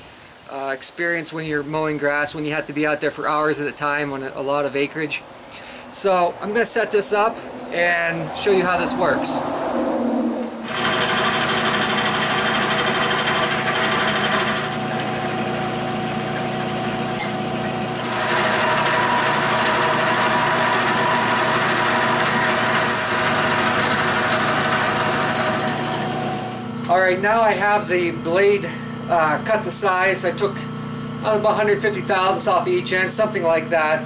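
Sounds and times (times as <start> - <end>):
milling machine cutting metal: 10.6 - 27.0.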